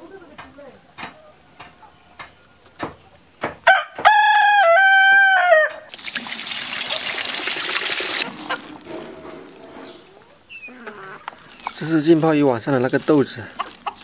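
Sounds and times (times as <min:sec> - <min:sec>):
rooster crowing: 0:03.6 - 0:05.9
water rushing over soybeans: 0:05.9 - 0:08.3.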